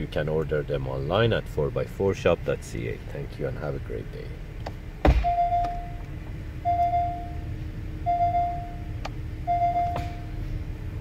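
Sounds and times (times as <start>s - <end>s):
low steady hum: 0.0s - 11.0s
car warning beeper: 5.1s - 6.0s, 6.6s - 10.4s.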